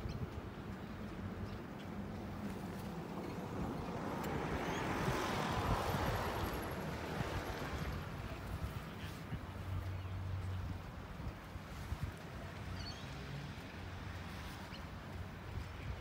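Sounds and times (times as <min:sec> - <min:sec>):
vehicle passing by: 0:02.3 - 0:09.2.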